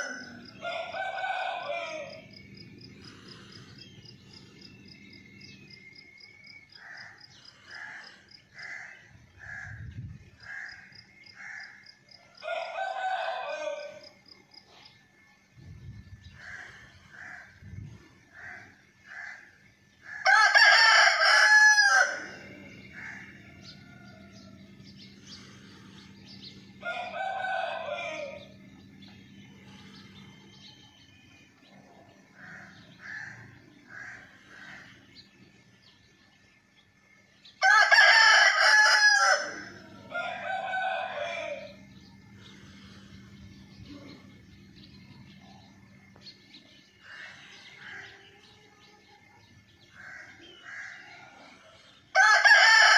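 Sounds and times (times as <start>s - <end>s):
rooster crowing: 0.0s - 2.5s, 12.3s - 14.1s, 20.2s - 25.0s, 26.8s - 28.6s, 37.6s - 41.9s, 50.0s - 52.9s.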